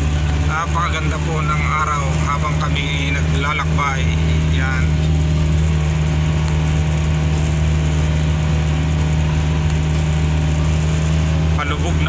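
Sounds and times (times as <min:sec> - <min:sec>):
engine drone inside vehicle cabin: 0:00.0 - 0:12.0.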